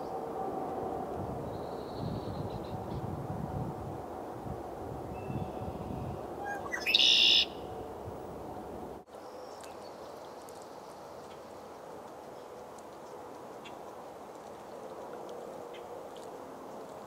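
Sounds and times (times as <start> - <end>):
bird singing buzzy trill: 5.2 - 7.6.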